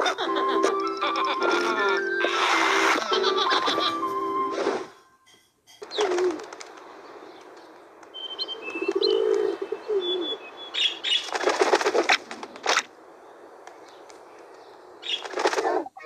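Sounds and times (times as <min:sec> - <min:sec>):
bird cooing warbles: 0:00.0 - 0:04.9, 0:05.8 - 0:07.4, 0:08.3 - 0:12.9, 0:15.0 - 0:16.0
music: 0:00.0 - 0:05.6
fluttering wingbeats: 0:05.8 - 0:07.9, 0:11.1 - 0:12.9, 0:15.0 - 0:15.9
high bird chirps: 0:07.2 - 0:11.3.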